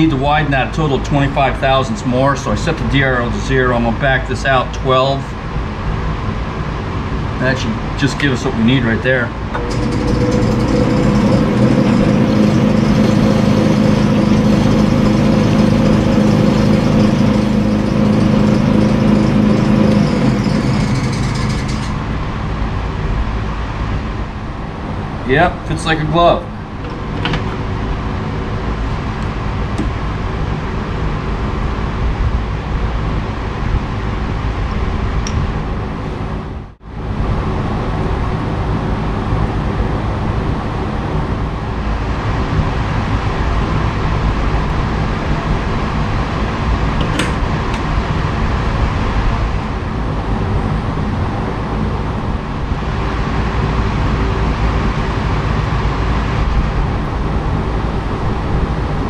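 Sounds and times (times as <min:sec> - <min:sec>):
motor whirring hum: 0:09.4 - 0:22.3.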